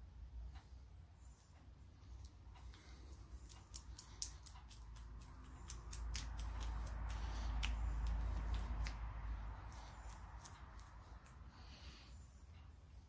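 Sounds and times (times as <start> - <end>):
sticky grease squelches: 2.2 - 11.9.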